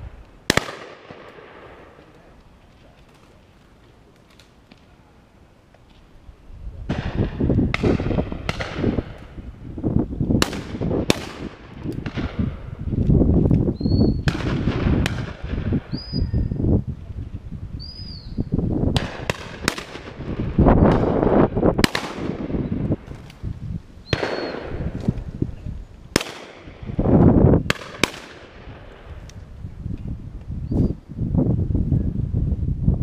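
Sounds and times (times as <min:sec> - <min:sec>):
shotguns firing: 0:00.5 - 0:02.0, 0:06.9 - 0:09.2, 0:10.4 - 0:12.6, 0:14.2 - 0:15.7, 0:19.0 - 0:23.1, 0:24.1 - 0:25.0, 0:26.1 - 0:26.9, 0:27.7 - 0:29.0.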